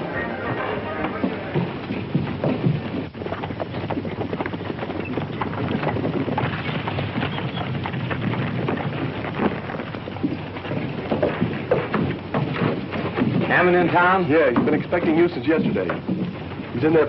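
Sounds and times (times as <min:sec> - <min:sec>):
old film soundtrack hiss: 0:00.0 - 0:02.4, 0:12.8 - 0:17.0
horses' hooves on dirt: 0:00.0 - 0:17.0.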